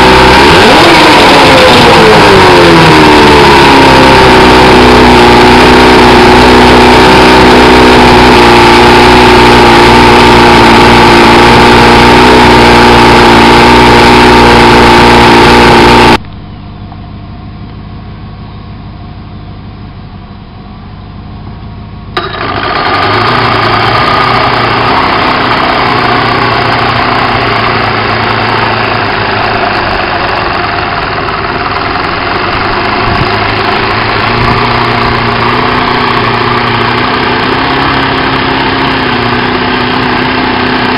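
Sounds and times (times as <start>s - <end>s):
outboard motor idling in water: 0.0s - 40.9s
outboard motor running loud: 0.0s - 40.9s
quiet outdoor sound: 15.7s - 40.2s.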